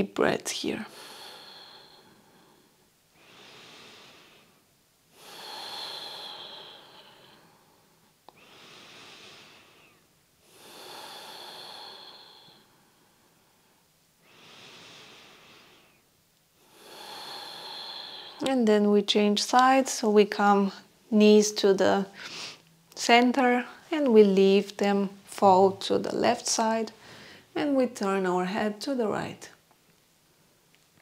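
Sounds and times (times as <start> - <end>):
woman breathing deeply: 0.9 - 18.5, 22.1 - 22.7, 27.0 - 27.5.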